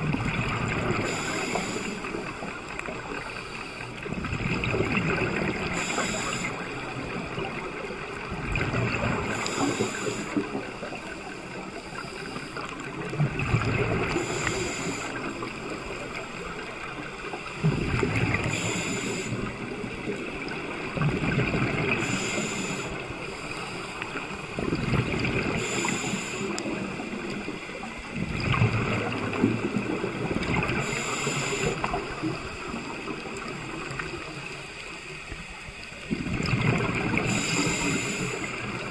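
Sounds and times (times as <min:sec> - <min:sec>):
rush of bubbles: 0:00.0 - 0:03.1, 0:04.0 - 0:11.6, 0:12.8 - 0:23.2, 0:24.0 - 0:34.4, 0:36.1 - 0:38.9
diver breathing through regulator: 0:01.0 - 0:02.3, 0:05.6 - 0:07.2, 0:09.2 - 0:12.8, 0:14.0 - 0:16.5, 0:17.5 - 0:19.6, 0:21.9 - 0:24.0, 0:25.4 - 0:26.8, 0:30.8 - 0:32.1, 0:37.2 - 0:38.7.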